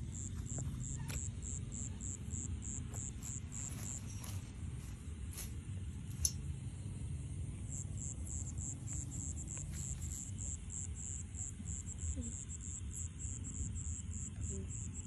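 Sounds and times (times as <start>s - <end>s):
crickets chirping: 0.0s - 15.0s
steady low rumble: 0.0s - 15.0s
sharp click: 6.2s - 6.4s.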